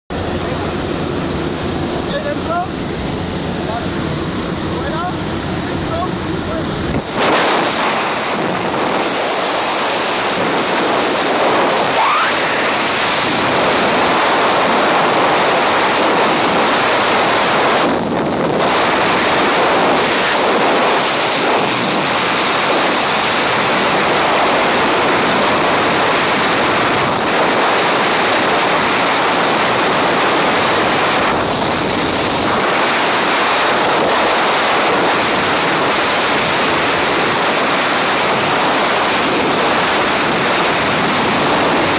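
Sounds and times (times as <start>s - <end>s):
wind buffeting microphone: 0.1s - 41.9s.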